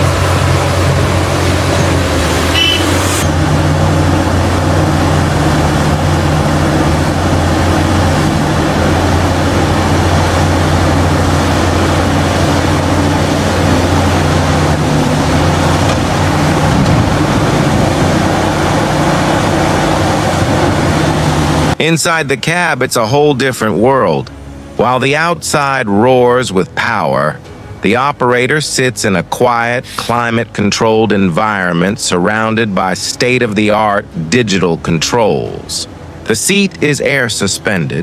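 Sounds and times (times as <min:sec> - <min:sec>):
excavator diesel engine drone: 0:00.0 - 0:38.0.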